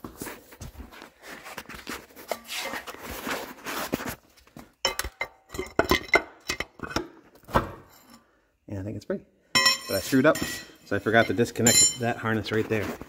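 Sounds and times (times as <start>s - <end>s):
rustling handling noise: 0.0s - 4.7s
metal tools clinking: 9.6s - 12.2s.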